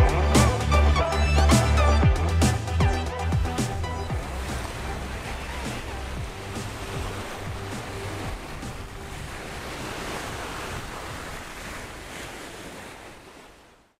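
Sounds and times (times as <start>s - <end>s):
background music with bass notes: 0.0s - 9.8s
steady rushing noise: 3.4s - 11.9s.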